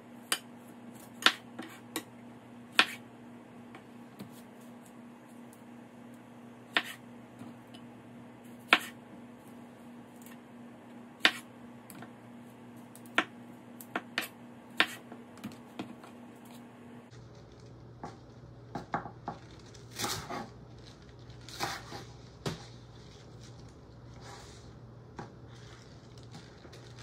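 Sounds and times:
knife cutting on wooden board: 14.2 - 15.1.

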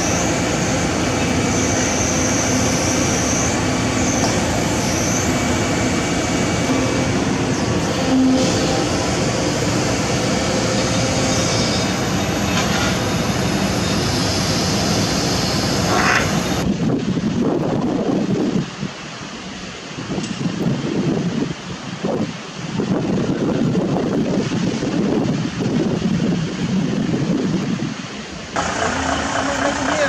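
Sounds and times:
excavator diesel engine running: 0.0 - 16.7, 28.6 - 30.0
high whine: 0.0 - 17.0.

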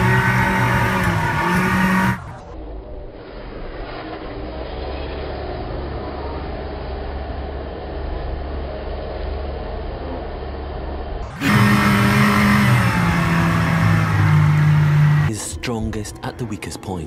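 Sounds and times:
motorboat engine running: 0.0 - 2.6, 11.2 - 15.3
steady hum with low tones: 2.1 - 17.0.

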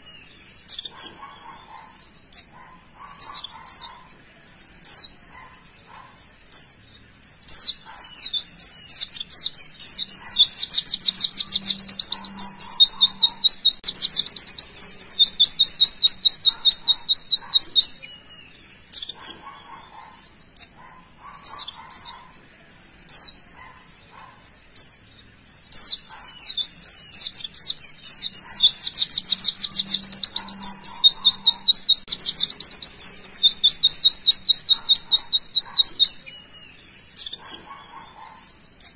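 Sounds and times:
bird chirps: 0.0 - 38.9
bird singing rapid high notes: 6.2 - 22.2, 24.2 - 38.9.

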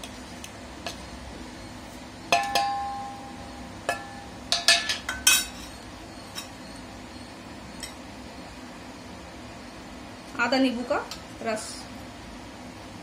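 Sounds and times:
spoon clinking against metal bowl: 2.3 - 5.7.

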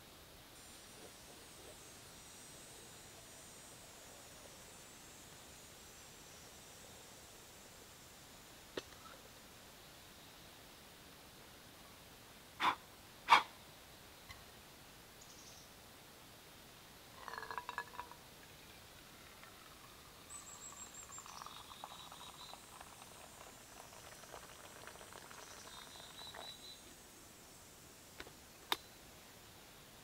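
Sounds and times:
water pouring into metal mug: 17.2 - 18.2, 19.0 - 26.6.

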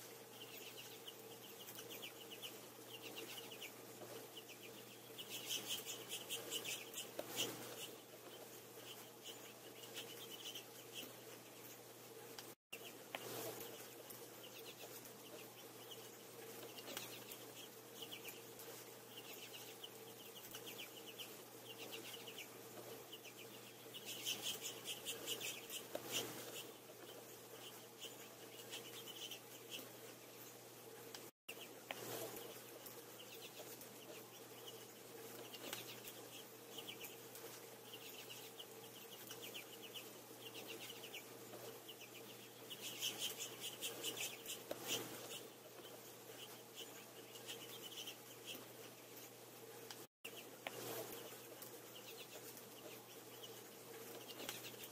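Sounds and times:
faint steady hum: 0.0 - 54.9
finches twittering: 0.2 - 11.2, 12.8 - 29.9.

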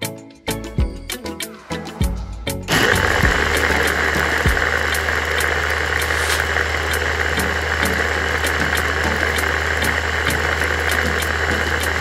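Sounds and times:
blender motor running: 2.7 - 12.0.

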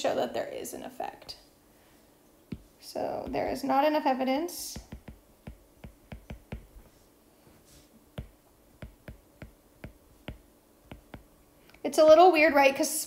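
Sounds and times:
stylus tapping on glass screen: 4.8 - 6.9, 8.2 - 11.3.

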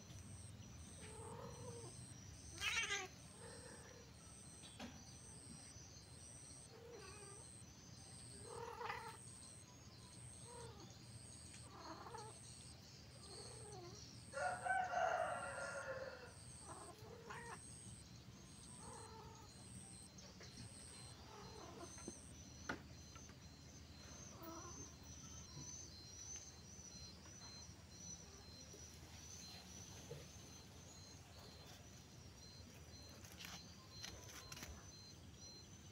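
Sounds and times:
faint high-pitched chirp: 0.0 - 35.9
cats yowling and growling: 1.0 - 4.4, 6.7 - 7.6, 8.2 - 9.4, 10.2 - 10.9, 11.6 - 12.4, 13.2 - 20.0, 20.6 - 22.3, 24.0 - 25.8.

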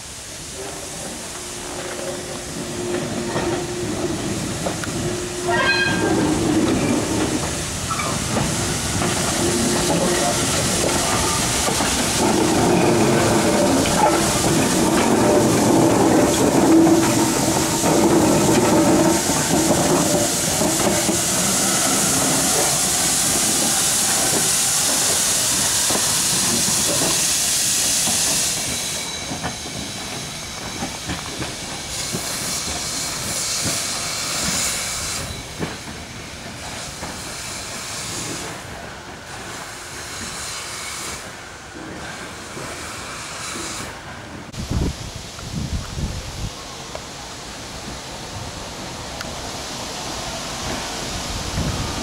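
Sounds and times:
steam locomotive hissing: 0.0 - 52.0.

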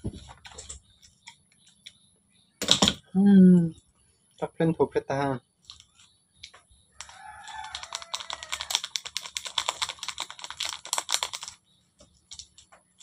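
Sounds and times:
rooster crowing: 6.9 - 8.8
plastic packet crackling: 7.0 - 11.6.

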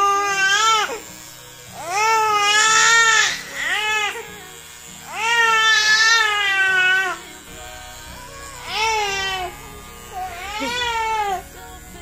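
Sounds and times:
baby crying: 8.6 - 11.4.

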